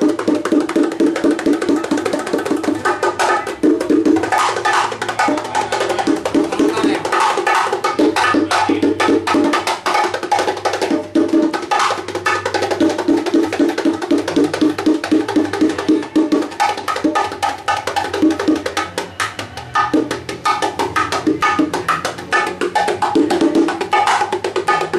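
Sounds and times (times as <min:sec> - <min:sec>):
bongos and congas playing: 0:00.0 - 0:24.9.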